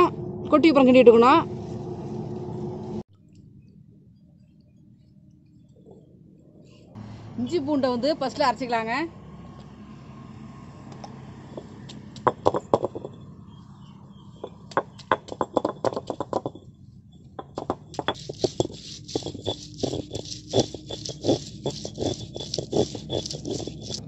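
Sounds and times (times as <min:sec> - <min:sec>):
stone grinding and scraping: 0:11.5 - 0:13.3, 0:14.4 - 0:16.6, 0:17.4 - 0:24.0
stone roller tapping on stone: 0:11.6 - 0:13.2, 0:14.4 - 0:16.6, 0:17.4 - 0:24.0.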